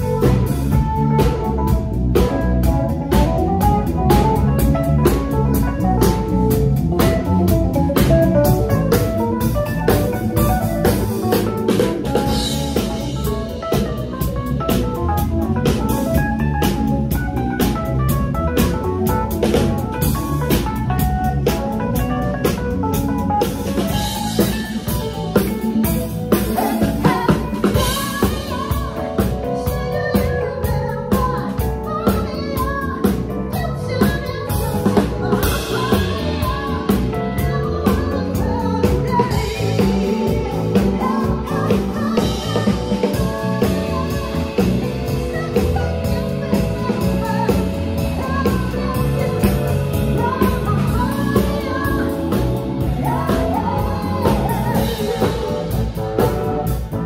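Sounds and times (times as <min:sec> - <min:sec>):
live band playing: 0:00.0 - 0:57.0
woman singing: 0:00.0 - 0:57.0.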